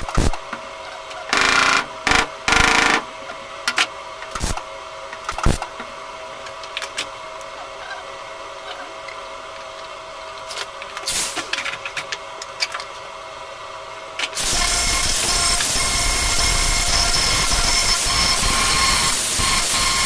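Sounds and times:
angle grinder grinding steel: 14.4s - 20.0s.

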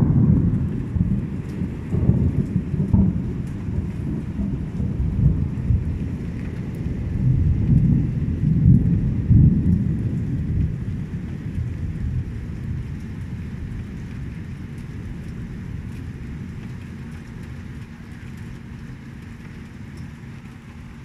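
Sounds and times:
rain falling: 0.0s - 21.0s
thunder rumbling: 0.0s - 21.0s.

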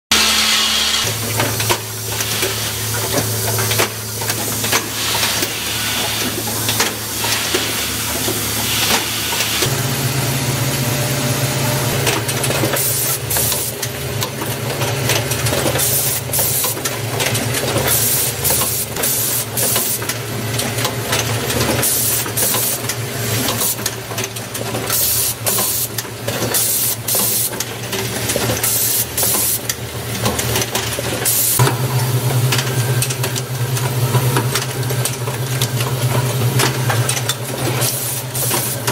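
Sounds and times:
pneumatic air hisses: 4.8s - 6.4s
machine low hum: 9.3s - 12.7s, 31.6s - 38.9s.

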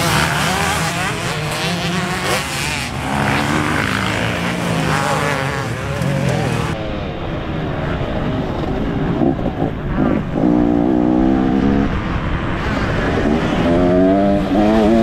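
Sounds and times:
pit bike engine revving: 0.0s - 6.8s.

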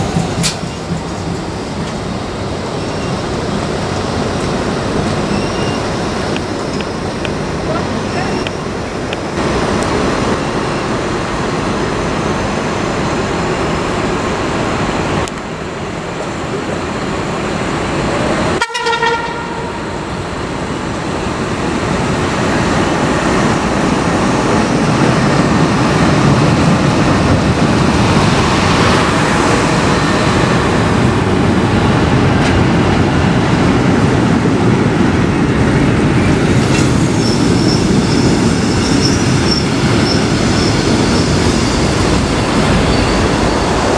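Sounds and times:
train wheels rumbling: 0.0s - 43.9s
high wheel squeal: 5.2s - 6.0s, 36.5s - 43.9s
train horn toot: 18.6s - 20.0s.

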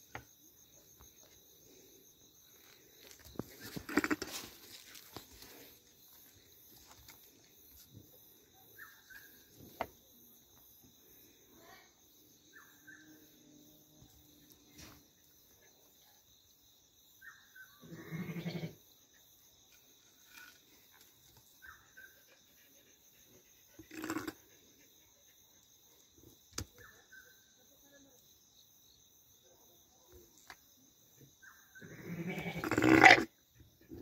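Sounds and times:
insects chirring: 0.0s - 34.0s
ram bleating: 17.8s - 18.8s, 31.8s - 33.3s.

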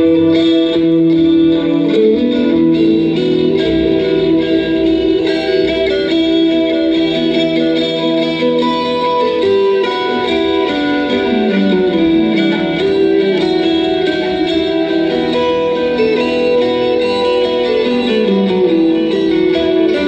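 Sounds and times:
effects-laden guitar music: 0.0s - 20.0s.

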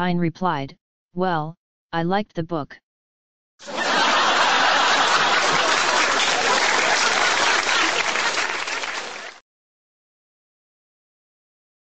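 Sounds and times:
crowd applause: 3.6s - 9.4s.

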